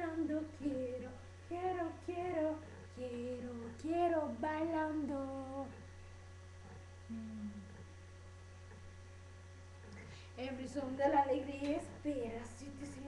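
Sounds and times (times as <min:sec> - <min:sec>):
girl singing: 0:00.0 - 0:05.8, 0:10.4 - 0:13.0
low electrical hum: 0:00.0 - 0:13.0
low hummed note: 0:06.6 - 0:07.9.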